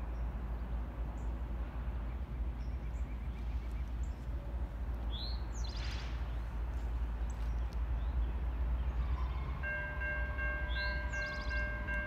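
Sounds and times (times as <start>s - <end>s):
birds chirping: 7.1s - 12.0s.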